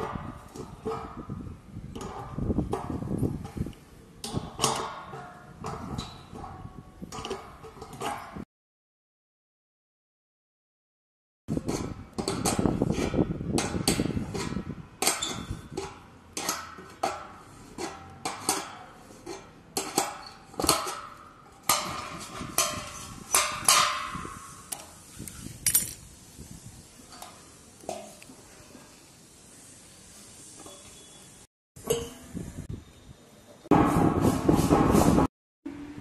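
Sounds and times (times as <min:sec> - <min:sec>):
spanner clinking on metal bolts: 0:25.6 - 0:26.0.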